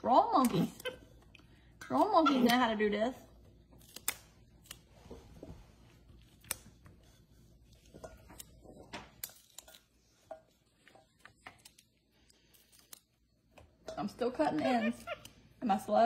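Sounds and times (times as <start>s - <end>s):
green beans snapping: 3.8s - 4.9s, 9.1s - 9.8s.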